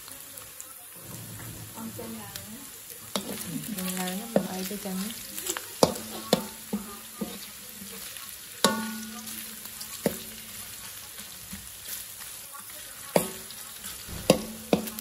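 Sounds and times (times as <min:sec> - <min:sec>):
pork sizzling in hot oil: 0:00.0 - 0:15.0
wok ringing: 0:00.9 - 0:15.0
metal spatula scraping and knocking: 0:01.0 - 0:02.4, 0:03.0 - 0:04.7, 0:05.4 - 0:07.9, 0:13.2 - 0:15.0.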